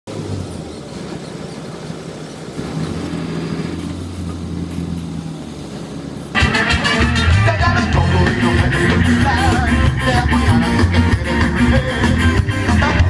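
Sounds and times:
bus engine droning: 0.1s - 13.0s
live band music: 6.4s - 13.0s.

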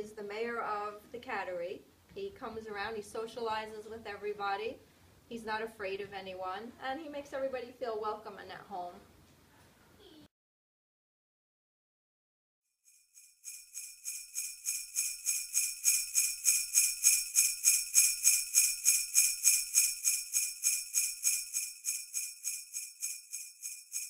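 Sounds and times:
jingle bells shaking: 13.4s - 24.0s.

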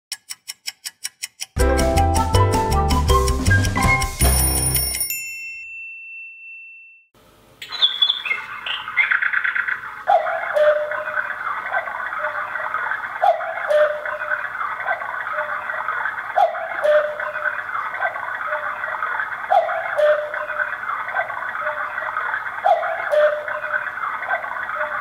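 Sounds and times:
clock clicks: 0.1s - 1.6s
two-note cuckoo calls: 7.6s - 11.4s, 13.2s - 14.5s, 16.3s - 17.7s, 19.5s - 20.8s, 22.6s - 24.0s.

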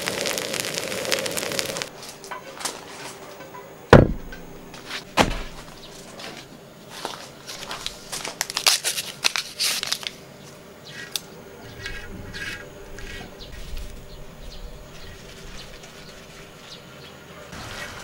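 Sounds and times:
single knock: 3.9s - 4.5s.

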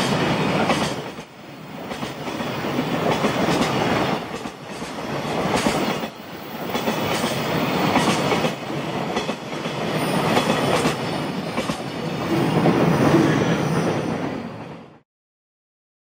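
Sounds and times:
train wheels clacking over rail joints: 0.0s - 11.9s
freight train rumble: 0.0s - 15.0s.

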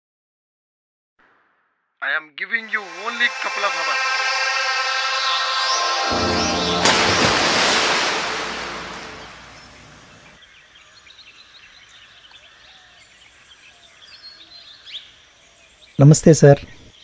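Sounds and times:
loud rush of noise: 2.6s - 10.4s
glass splashing into pool: 6.7s - 9.9s
small birds chirping: 9.5s - 17.0s.

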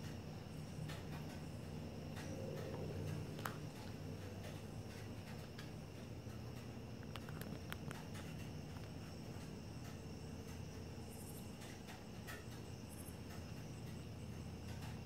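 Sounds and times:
insect high ringing: 0.0s - 15.0s
steady low hum: 0.0s - 15.0s.

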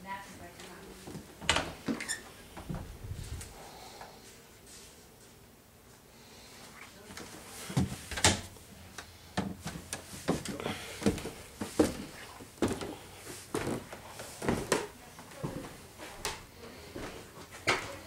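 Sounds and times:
footsteps on wooden stairs: 7.2s - 8.3s, 9.4s - 16.4s.

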